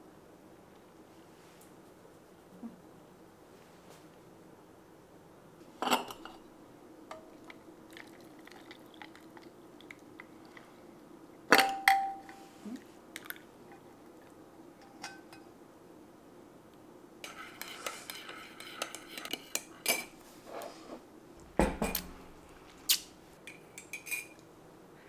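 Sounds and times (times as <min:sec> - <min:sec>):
faint steady hum: 0:00.0 - 0:25.0
metal clinking against ceramic mug: 0:23.8 - 0:24.4.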